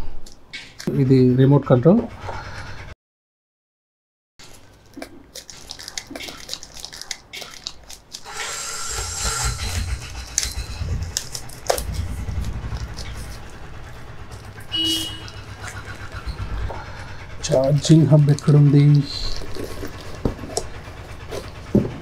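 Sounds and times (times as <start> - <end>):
packaging rustling: 5.3 - 8.3.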